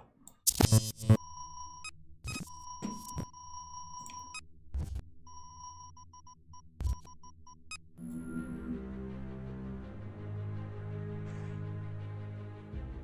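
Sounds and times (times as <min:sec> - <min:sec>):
glitchy electronic burst: 0:00.5 - 0:01.2.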